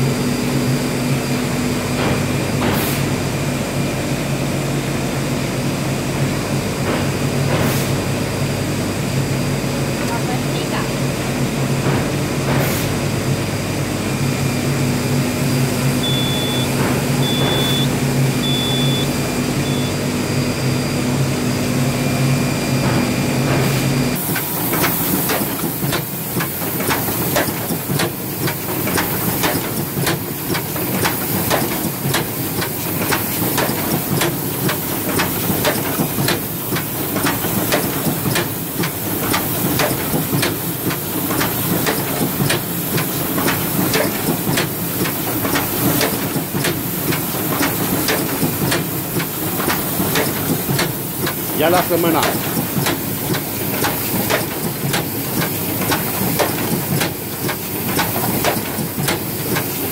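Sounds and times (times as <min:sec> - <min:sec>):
machine humming: 0:08.1 - 0:59.9
short high beeps: 0:16.0 - 0:20.0
rapid mechanical clatter: 0:24.2 - 0:59.9.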